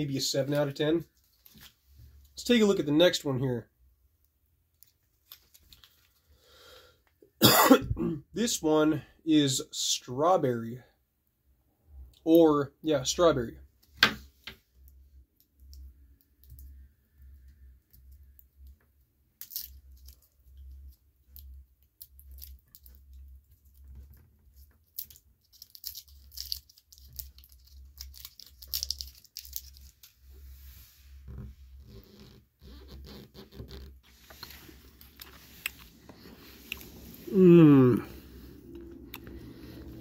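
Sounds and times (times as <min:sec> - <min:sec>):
wax paper wrapper crinkling: 0:05.2 - 0:06.3, 0:19.4 - 0:30.4.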